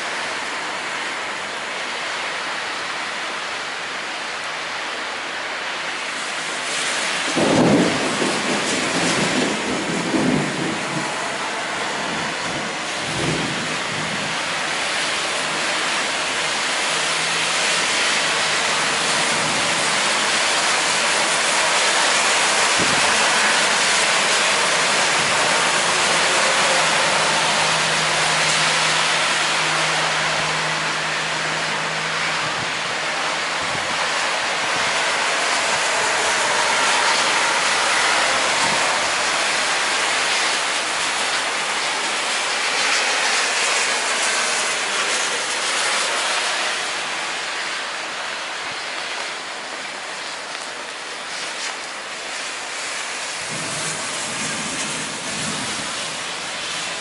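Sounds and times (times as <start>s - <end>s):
heavy rain on pavement: 0.0s - 57.0s
thunder rumbling: 7.1s - 44.3s, 53.3s - 57.0s.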